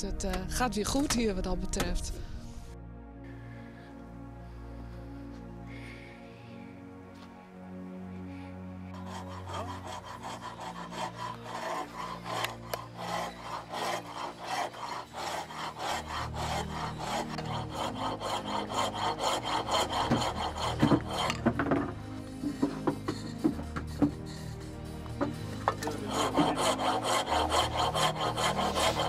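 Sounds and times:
hand tool working hardwood: 0:09.0 - 0:29.0.

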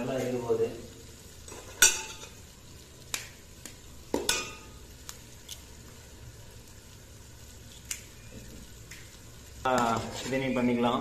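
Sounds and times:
eggshells cracking on metal pot: 0:03.1 - 0:05.7.

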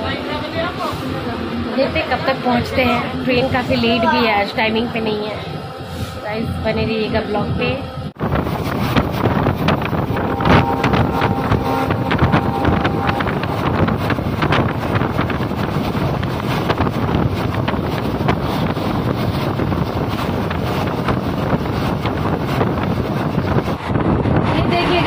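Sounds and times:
train coach running noise: 0:00.0 - 0:25.0
wind buffeting microphone: 0:00.0 - 0:25.0
wheels clacking on track: 0:08.2 - 0:25.0.

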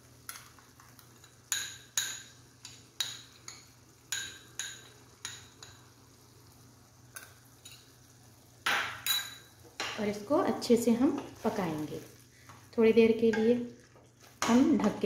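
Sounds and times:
spoon clinking against metal pan: 0:08.7 - 0:10.0.

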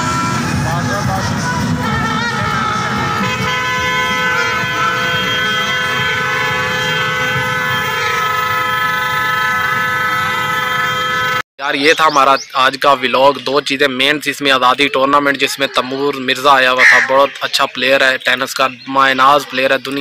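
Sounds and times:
motorcycle horns sounding: 0:01.8 - 0:11.4, 0:16.8 - 0:17.3.

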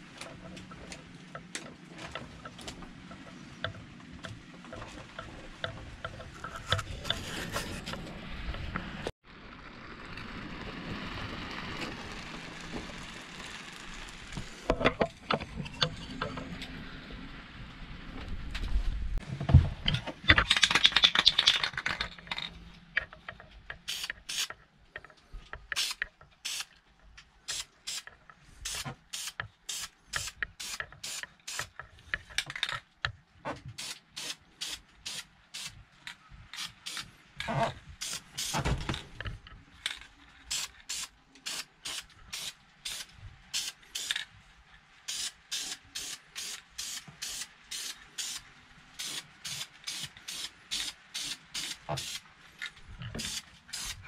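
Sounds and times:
spray paint can hissing: 0:23.8 - 0:24.5, 0:25.7 - 0:26.7, 0:27.5 - 0:31.7, 0:33.8 - 0:35.8, 0:36.5 - 0:37.1, 0:38.0 - 0:38.6, 0:40.5 - 0:44.2, 0:45.1 - 0:48.4, 0:49.0 - 0:52.2, 0:53.2 - 0:54.0.

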